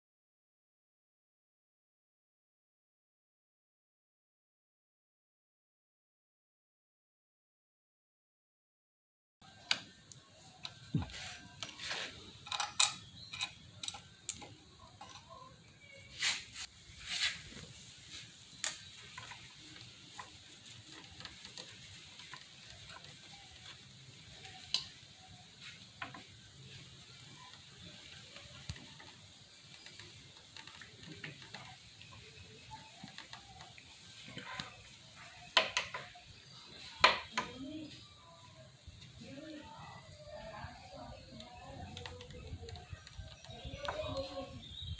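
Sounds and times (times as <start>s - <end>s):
tools tapping on metal and rubber: 10.6s - 15.3s, 18.6s - 19.4s.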